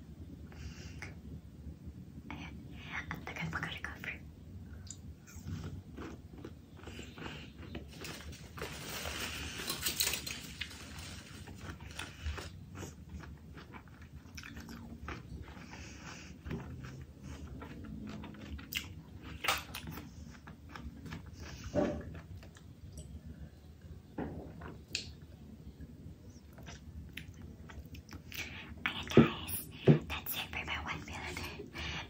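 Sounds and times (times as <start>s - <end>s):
person chewing food: 4.8s - 23.4s, 26.4s - 28.7s
crunchy crackles: 5.3s - 22.7s.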